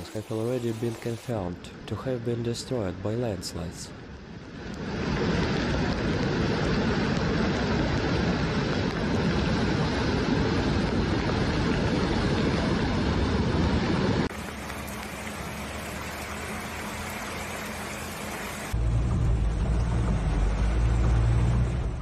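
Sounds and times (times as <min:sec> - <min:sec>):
floodwater rushing: 0:04.5 - 0:22.0.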